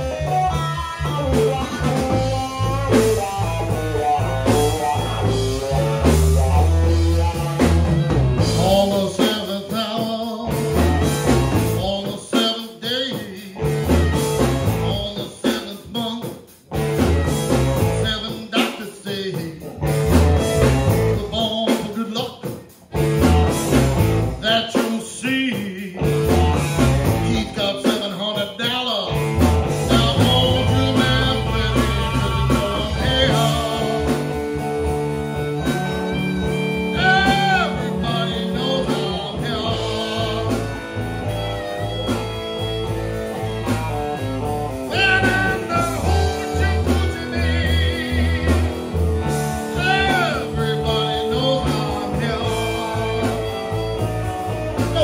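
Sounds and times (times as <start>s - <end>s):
harmonica bending notes: 0.0s - 8.8s, 29.1s - 55.0s
electric bass: 0.0s - 12.4s, 13.3s - 15.7s, 16.6s - 18.4s, 19.1s - 22.0s, 22.8s - 24.6s, 25.6s - 27.9s, 29.0s - 55.0s
electric guitars: 0.0s - 55.0s.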